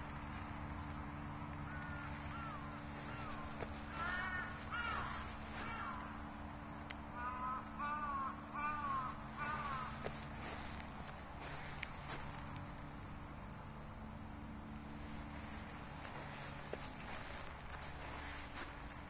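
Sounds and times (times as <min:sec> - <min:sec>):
crow cawing: 0:01.6 - 0:06.5, 0:07.1 - 0:10.8.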